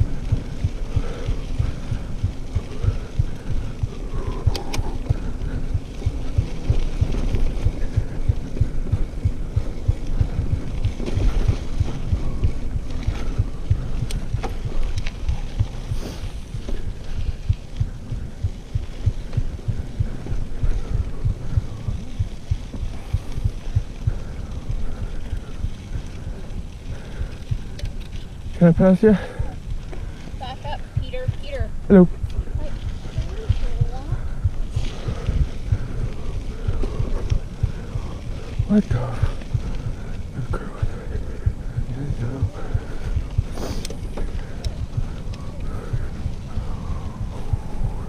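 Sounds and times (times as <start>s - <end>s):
bike jolting over trail: 0.0s - 31.0s, 31.8s - 48.0s
wind buffeting microphone: 0.0s - 48.0s
sharp clicks: 4.2s - 5.1s.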